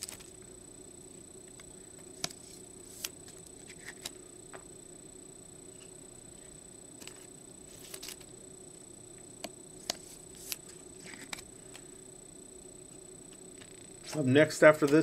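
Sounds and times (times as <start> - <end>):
faint steady hum: 0.0 - 15.0
cards sliding into plastic sleeves: 2.2 - 4.2, 7.0 - 8.3, 9.8 - 11.5.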